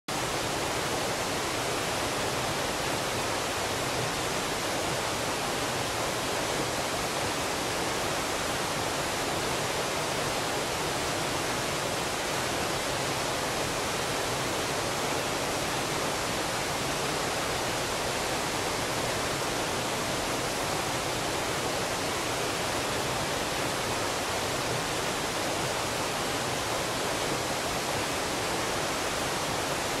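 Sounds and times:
mountain stream rushing over rocks: 0.1s - 30.0s.

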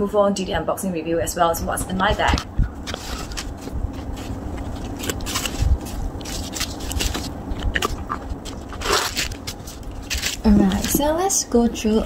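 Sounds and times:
fabric rustling and scraping: 1.9s - 11.2s.

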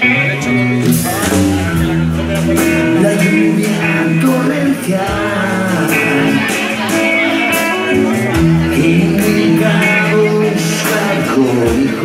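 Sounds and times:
drum kit: 0.0s - 12.0s
electric guitars: 0.0s - 12.0s.

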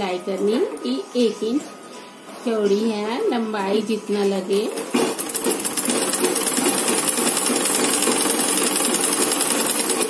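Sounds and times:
sewing machine clattering: 4.7s - 10.0s.

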